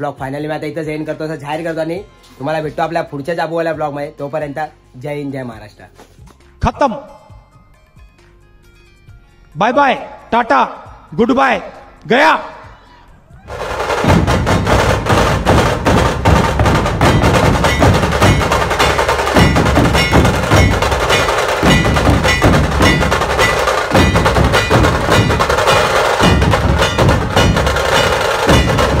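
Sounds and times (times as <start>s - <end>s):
big barrel drums: 13.4s - 29.0s
stick-beaten drums: 13.5s - 29.0s.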